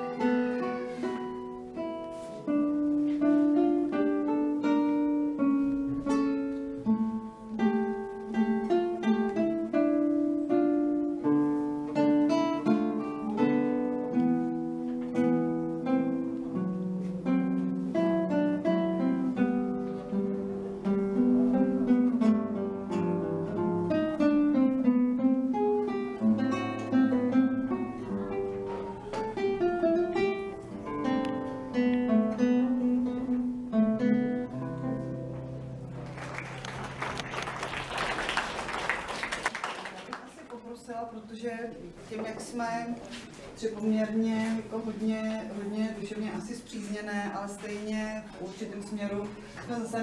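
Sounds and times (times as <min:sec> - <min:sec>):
classical guitar playing: 0:00.0 - 0:39.6, 0:40.8 - 0:50.0
audience applause: 0:35.8 - 0:40.5.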